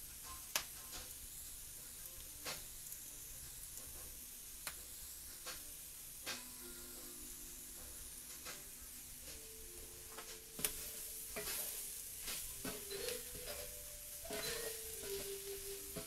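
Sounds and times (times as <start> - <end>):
vegetables sizzling in a skillet: 0.0 - 16.0
wooden spoon scraping a pan: 10.2 - 16.0.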